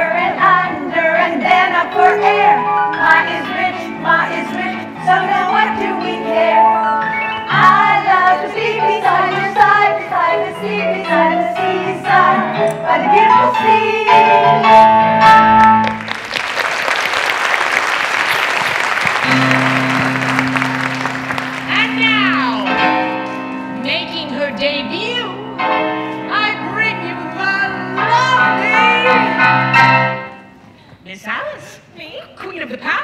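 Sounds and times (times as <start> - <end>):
voices singing with accompaniment: 0.0 - 14.9
audience applause: 15.8 - 22.0.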